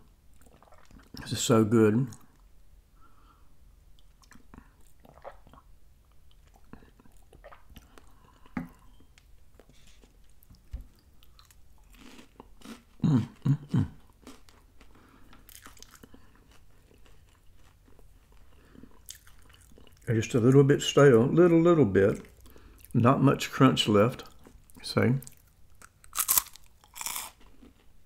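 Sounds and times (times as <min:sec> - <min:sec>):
chewing wafer cookies: 0:04.0 - 0:20.7, 0:24.2 - 0:28.0.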